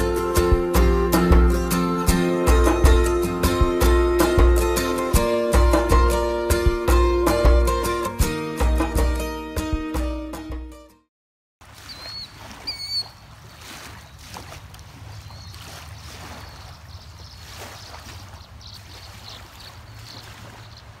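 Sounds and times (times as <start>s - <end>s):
background music: 0.0s - 11.1s
small waves lapping: 11.6s - 21.0s
bird chirping: 11.9s - 13.2s, 15.2s - 21.0s.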